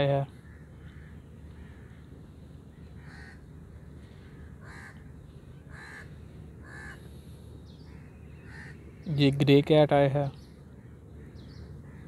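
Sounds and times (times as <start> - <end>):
crows cawing: 0.0 - 7.2, 7.8 - 8.9, 10.7 - 12.0
low background hum: 0.0 - 12.0.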